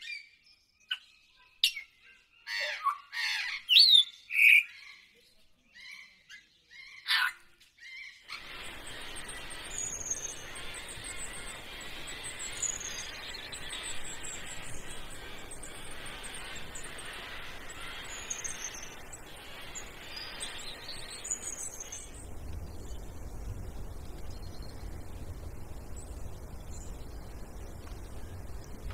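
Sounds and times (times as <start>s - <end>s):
birds chirping and whistling: 0.0s - 5.1s, 5.8s - 28.9s
steady hiss: 8.3s - 28.9s
low rumble: 18.8s - 28.9s.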